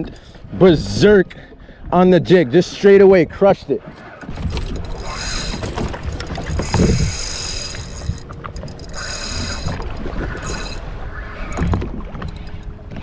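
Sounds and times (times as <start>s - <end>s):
fishing reel whirring: 4.2s - 12.7s.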